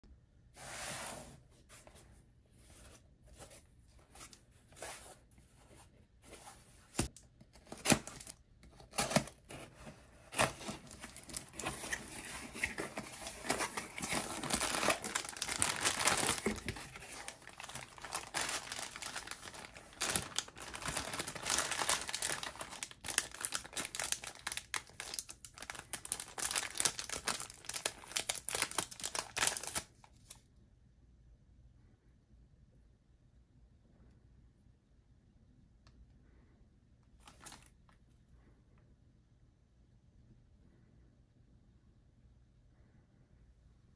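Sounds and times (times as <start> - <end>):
packaging rustles and clicks: 6.9 - 29.9
foil wrapper tearing and crinkling: 10.4 - 29.9
plastic bag crinkling: 10.4 - 29.9.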